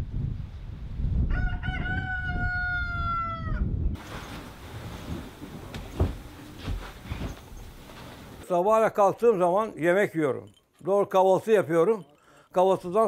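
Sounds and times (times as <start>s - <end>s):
wind rumble on microphone: 0.0s - 7.9s
rooster crowing: 1.3s - 3.7s
bedspread rustling: 4.0s - 8.4s.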